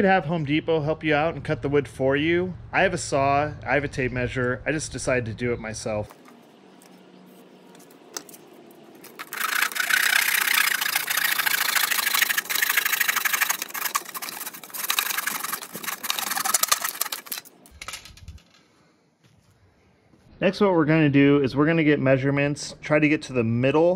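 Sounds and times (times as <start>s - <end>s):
hand saw cutting wood: 9.1s - 17.4s.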